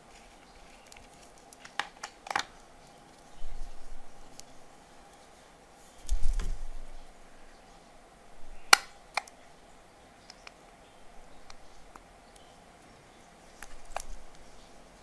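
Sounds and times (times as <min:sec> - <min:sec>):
plastic handling noise: 0:00.0 - 0:04.5, 0:13.5 - 0:14.5
sharp plastic clicks: 0:00.7 - 0:02.7, 0:08.7 - 0:09.4.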